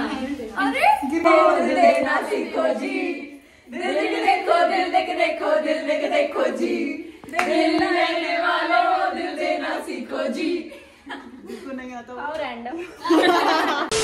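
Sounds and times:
women singing in unison: 0.0s - 10.9s.

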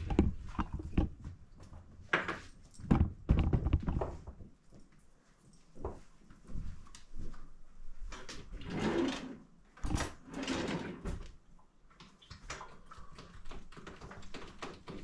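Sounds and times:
rustling and clatter: 0.0s - 4.9s.

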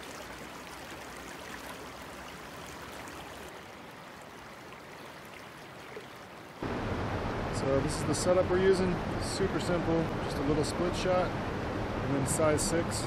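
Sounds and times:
stream flowing over stones: 0.0s - 7.4s.

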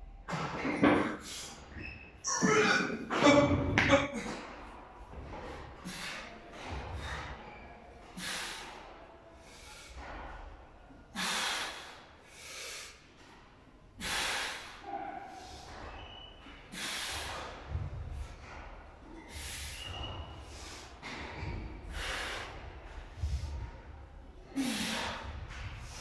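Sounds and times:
man breathing hard: 5.8s - 13.4s, 14.0s - 15.9s, 16.7s - 26.0s.

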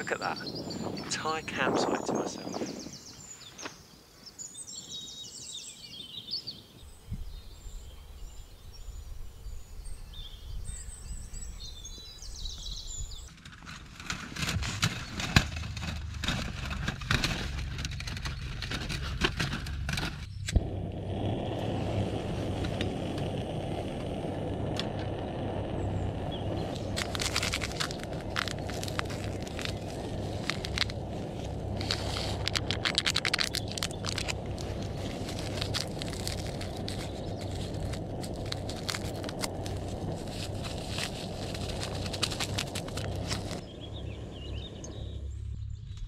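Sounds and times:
birds singing: 0.0s - 13.3s, 25.2s - 46.0s
light wind: 0.0s - 46.0s.

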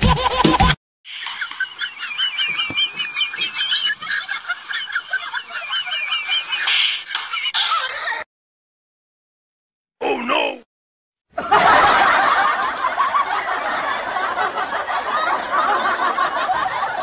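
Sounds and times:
rapid high chirping animal calls: 1.1s - 8.2s.

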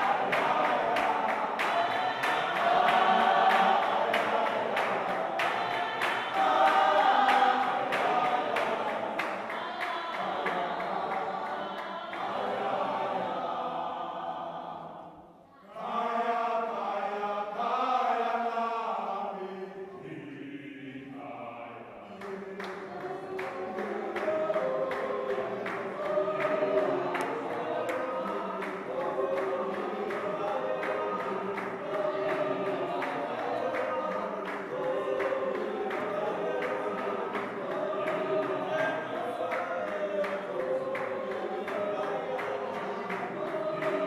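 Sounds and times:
hand claps keeping time: 0.0s - 12.4s, 22.2s - 44.0s
choir singing a hymn: 0.0s - 44.0s.

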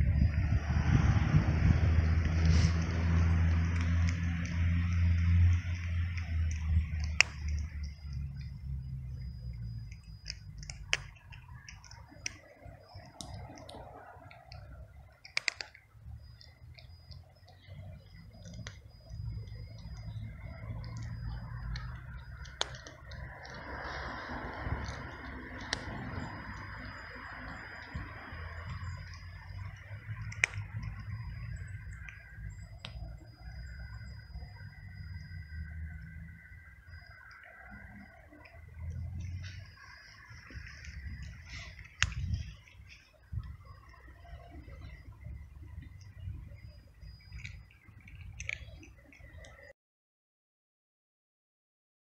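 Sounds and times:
low steady background rumble: 0.0s - 49.7s
cat crunching dry kibble: 2.2s - 15.8s, 16.4s - 17.2s, 18.2s - 26.9s, 27.5s - 32.2s, 37.9s - 45.2s, 47.3s - 49.6s.

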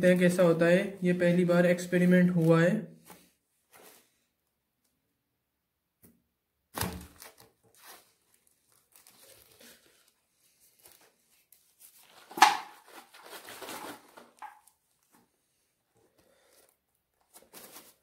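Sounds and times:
sharp plastic crackle: 6.7s - 15.1s
plastic bags rustling: 6.8s - 15.2s, 16.3s - 18.0s.

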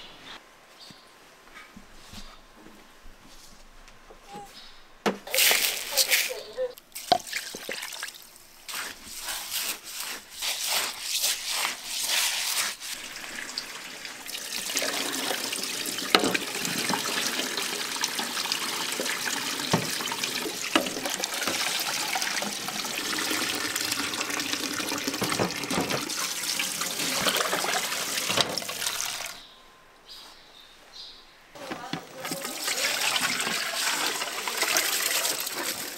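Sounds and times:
tap water splashing into sink: 7.0s - 8.1s, 14.3s - 29.4s.

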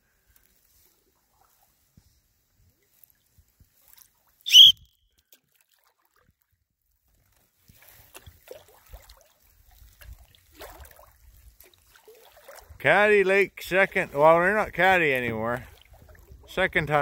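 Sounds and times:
paddle dipping in water: 0.2s - 4.5s, 5.2s - 16.8s
short high-pitched chirp: 4.5s - 4.9s.

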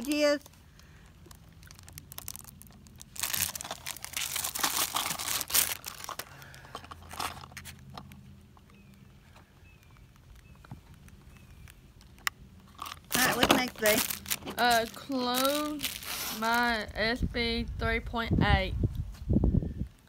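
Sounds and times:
plastic bag crinkling: 0.0s - 8.2s, 10.1s - 16.8s.

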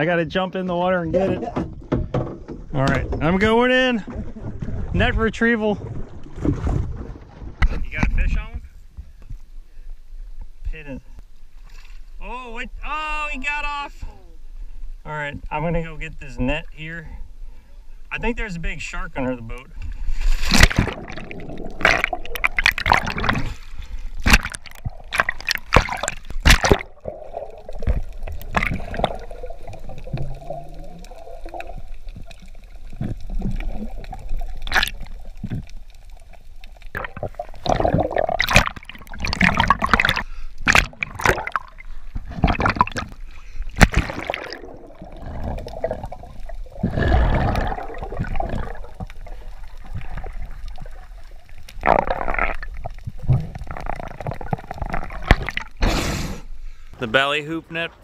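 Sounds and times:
underwater gurgling and sloshing: 0.7s - 12.9s, 14.4s - 58.0s.

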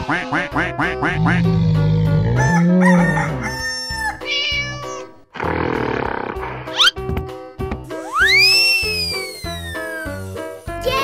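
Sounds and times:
rooster crowing: 2.3s - 4.3s
children's background music: 6.6s - 11.0s
cartoon animal calls: 8.0s - 10.2s.

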